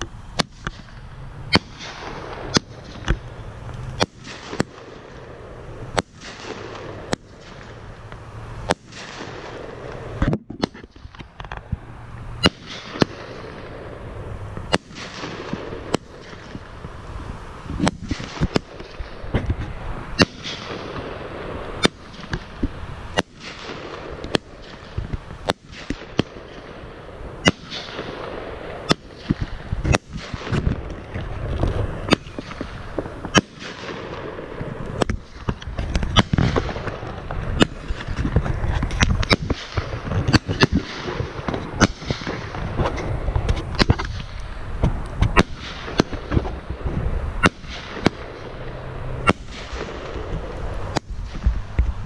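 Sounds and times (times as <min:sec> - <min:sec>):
fireworks bangs: 0:00.0 - 0:52.0.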